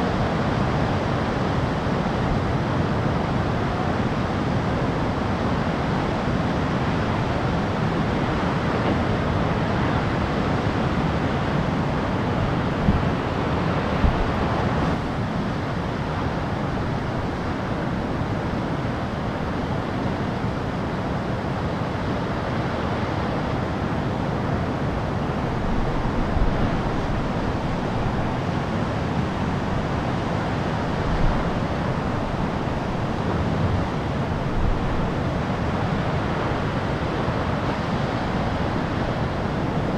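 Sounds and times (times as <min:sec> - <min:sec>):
ocean surf breaking: 0:00.2 - 0:39.9
wind buffeting microphone: 0:06.9 - 0:16.0.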